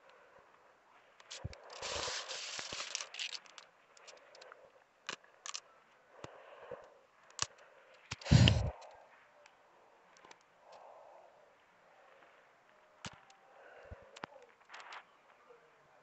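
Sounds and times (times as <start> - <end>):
small crackles and clicks: 0.0 - 15.8
vines rustling: 1.2 - 4.4
hand digging in loose soil: 1.3 - 3.6, 8.2 - 8.7.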